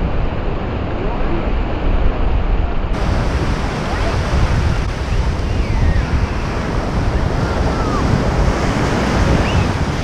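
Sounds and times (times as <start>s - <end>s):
surf washing: 0.0s - 10.0s
wind buffeting microphone: 0.0s - 10.0s.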